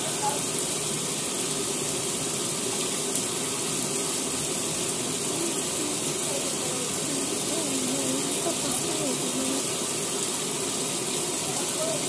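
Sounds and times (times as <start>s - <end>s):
faint wavering voice-like tones: 5.2s - 9.9s.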